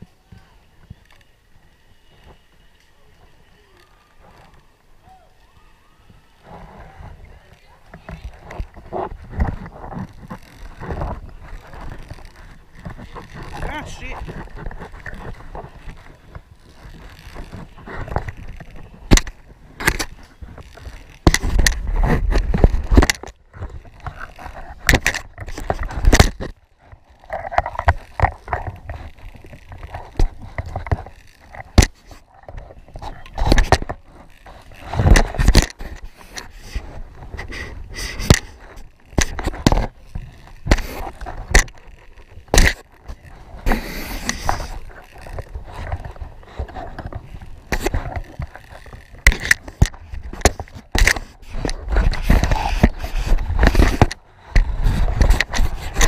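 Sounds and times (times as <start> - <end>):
carabiners and pulley clanking: 1.0 - 56.0
knocks and scrapes against cable: 6.4 - 56.0.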